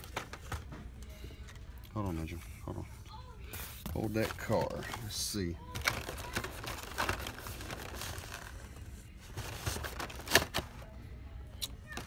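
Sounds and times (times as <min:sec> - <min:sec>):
toy cards rattling and scraping: 0:03.9 - 0:10.8.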